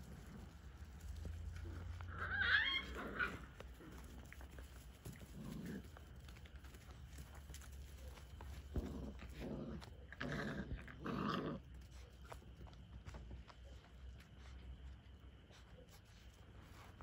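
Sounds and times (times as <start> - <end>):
puppy growling: 0.0 - 6.4, 7.5 - 12.3
puppy squealing: 2.2 - 3.4.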